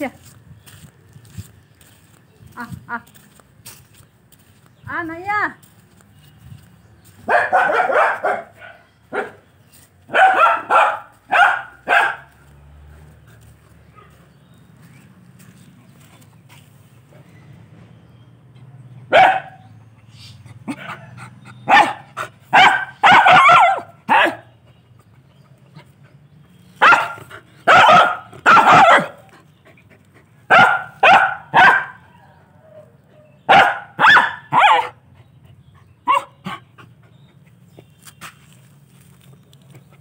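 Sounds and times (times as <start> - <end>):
dog barking: 7.2 - 9.4, 10.1 - 12.4, 13.9 - 14.2, 19.1 - 19.7, 20.7 - 24.5, 26.8 - 29.3, 30.5 - 32.3, 33.5 - 35.0, 36.0 - 36.6.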